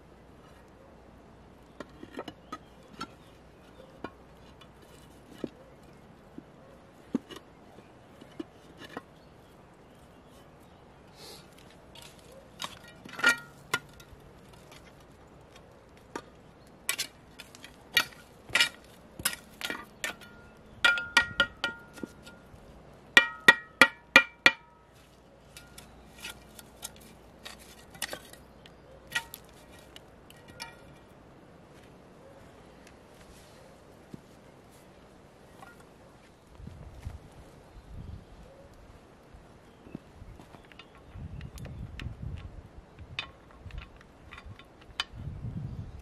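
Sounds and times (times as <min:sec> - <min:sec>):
metal trowel clinking on stones: 0:12.0 - 0:14.9, 0:16.9 - 0:22.5, 0:23.2 - 0:24.9, 0:25.5 - 0:28.5, 0:29.1 - 0:31.1.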